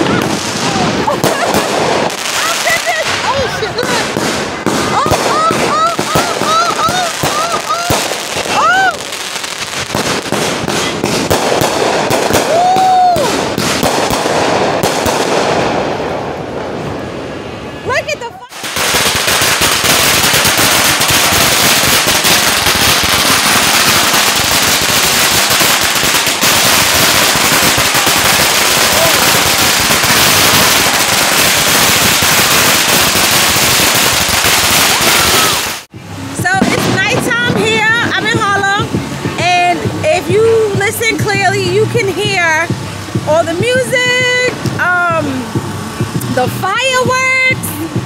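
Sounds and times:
firework whistle: 0.0 - 38.4
fireworks bangs and crackles: 0.0 - 48.0
noisy din: 0.0 - 48.0.

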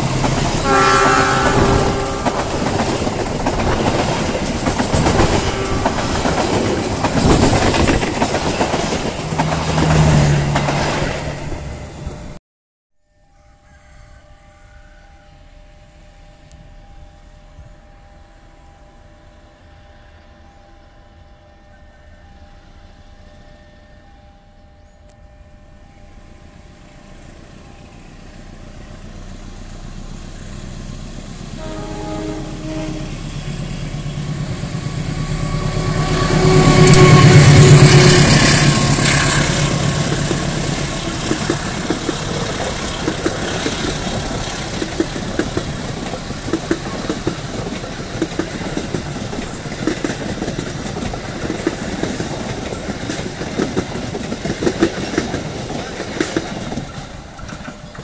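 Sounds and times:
wheels clacking over rail joints: 0.0 - 12.2, 33.6 - 58.0
diesel locomotive passing: 0.0 - 12.4, 13.4 - 58.0
train horn: 0.6 - 3.8, 4.9 - 6.4, 13.3 - 26.3, 31.4 - 42.4.

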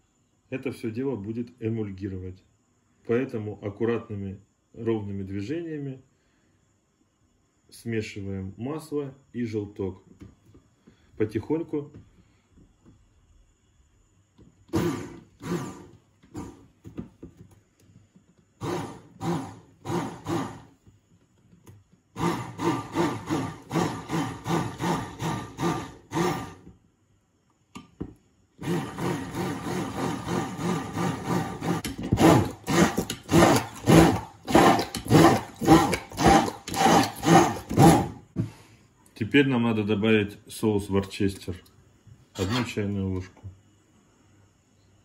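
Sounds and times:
immersion blender running: 14.7 - 16.6, 18.6 - 20.7, 22.2 - 26.7, 28.6 - 38.2.

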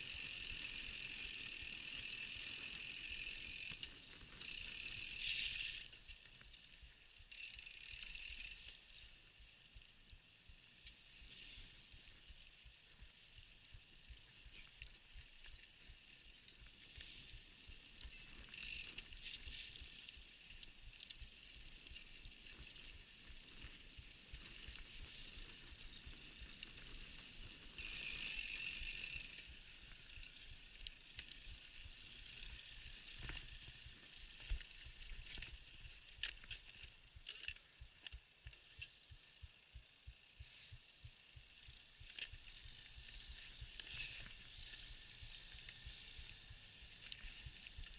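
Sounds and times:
bike rattling and knocking: 0.0 - 5.8
bike tyres rolling on sandy soil: 0.0 - 47.9.

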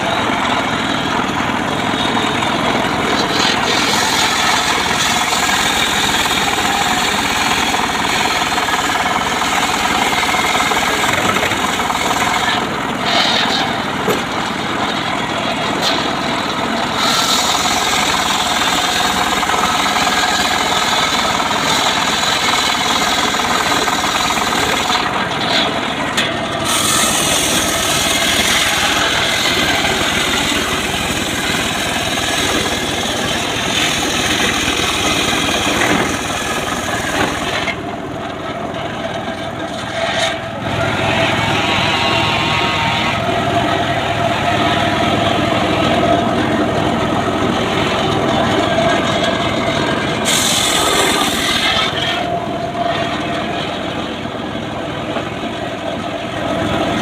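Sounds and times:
saw cutting through log: 0.0 - 57.0
sawmill engine running: 0.0 - 57.0.

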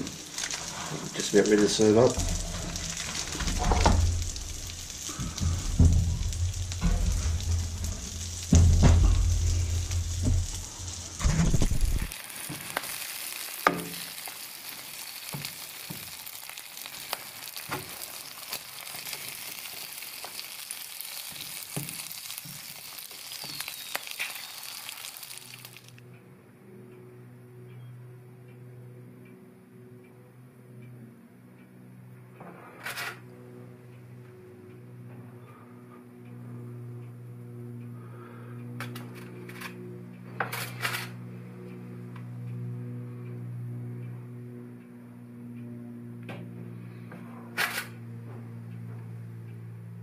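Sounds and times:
snow peas sizzling in a frying pan: 0.0 - 26.0
handling thumps and rumble: 2.1 - 12.1.

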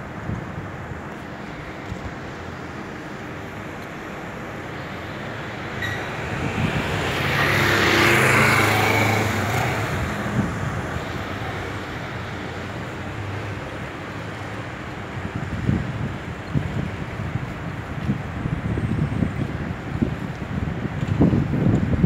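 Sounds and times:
street traffic hum: 0.0 - 22.0
vehicle passing close by: 4.6 - 13.4.

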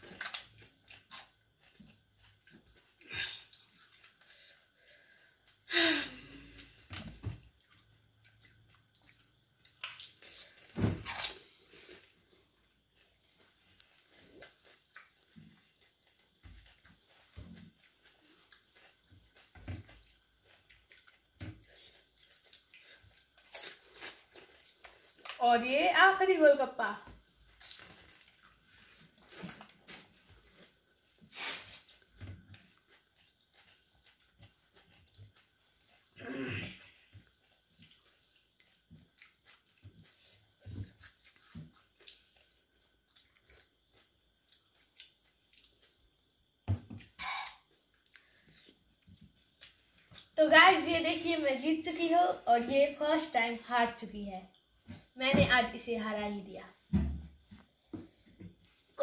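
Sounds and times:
quiet chewing: 0.0 - 5.7, 6.4 - 25.4, 27.5 - 31.2, 31.8 - 46.4, 47.0 - 50.4.

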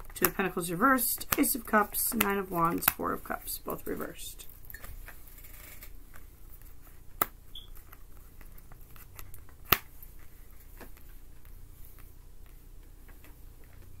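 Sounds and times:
cards sliding and tapping on cloth: 1.2 - 3.1, 6.0 - 13.4.

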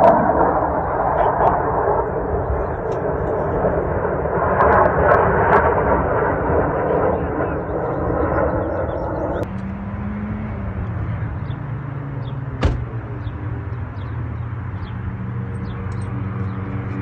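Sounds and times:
low engine hum: 7.1 - 17.0.

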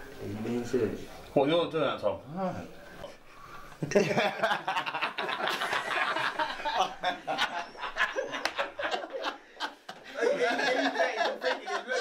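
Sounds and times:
men laughing: 3.7 - 12.0.

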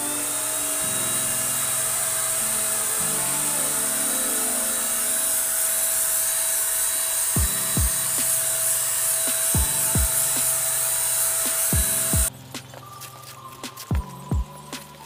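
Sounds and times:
spray gun blower hiss and whine: 0.0 - 15.0
bass drum music beat: 7.4 - 8.0, 9.5 - 10.4, 11.5 - 12.7, 13.6 - 15.0.

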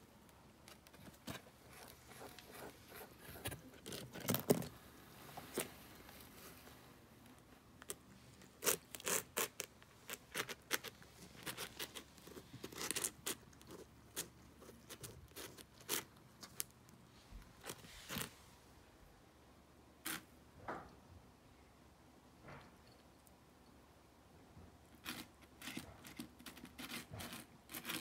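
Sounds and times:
cat chewing crunchy food: 25.0 - 28.0.

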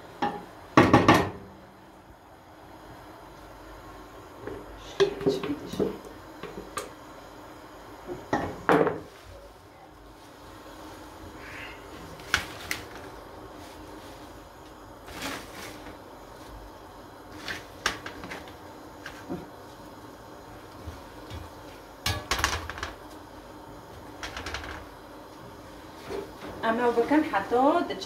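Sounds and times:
leaves rustling: 15.0 - 16.6.

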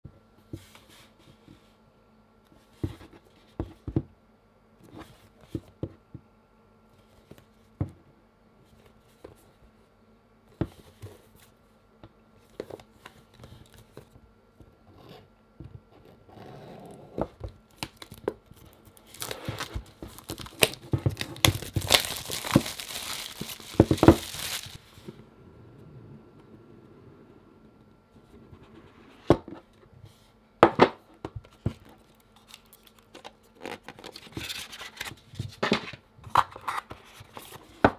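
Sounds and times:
plastic wrap tearing and crinkling: 17.7 - 24.8.

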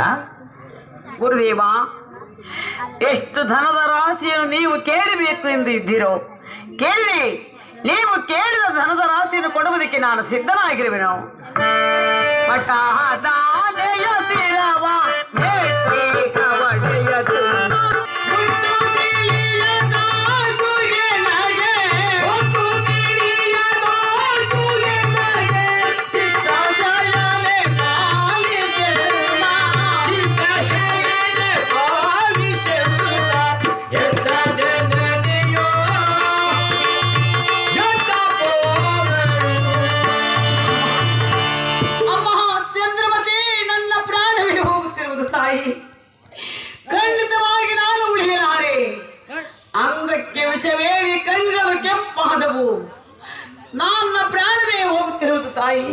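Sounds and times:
tabla drumming: 11.6 - 44.9
woman singing: 12.4 - 36.6.

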